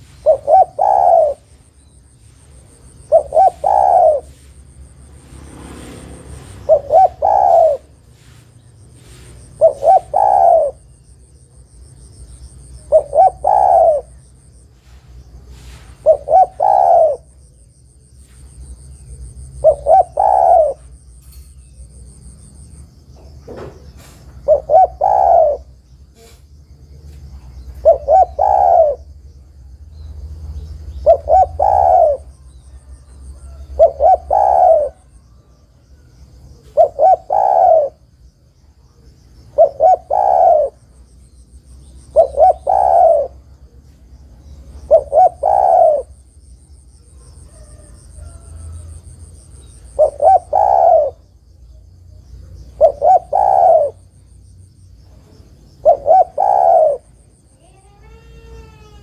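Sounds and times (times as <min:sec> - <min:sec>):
dove cooing: 0:00.0 - 0:01.8, 0:02.4 - 0:04.7, 0:06.2 - 0:08.4, 0:09.0 - 0:11.1, 0:12.3 - 0:17.7, 0:19.1 - 0:21.0, 0:23.5 - 0:26.4, 0:27.4 - 0:29.3, 0:30.7 - 0:38.2, 0:39.4 - 0:41.0, 0:42.0 - 0:43.8, 0:44.5 - 0:51.4, 0:52.1 - 0:54.1, 0:55.0 - 0:59.0.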